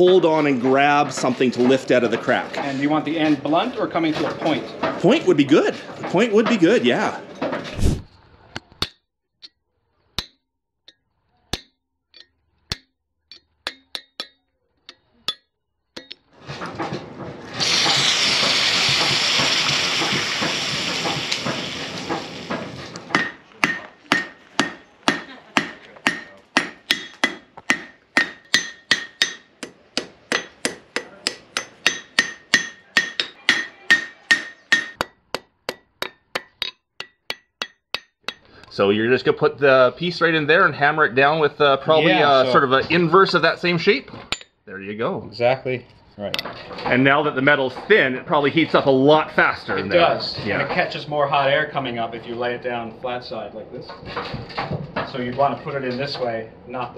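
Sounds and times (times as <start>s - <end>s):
loud rushing noise: 7.7s - 8.1s
hammer striking steel on anvil: 10.2s - 16.3s, 23.1s - 38.5s.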